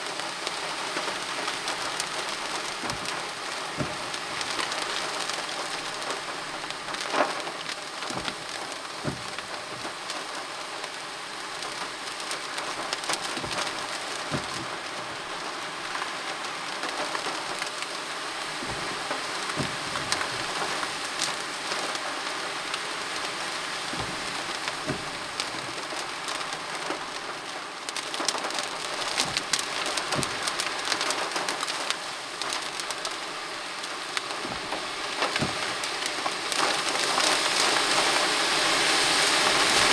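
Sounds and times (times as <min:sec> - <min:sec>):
rain on car roof: 0:00.0 - 0:39.9
single raindrop hits: 0:12.6 - 0:16.0.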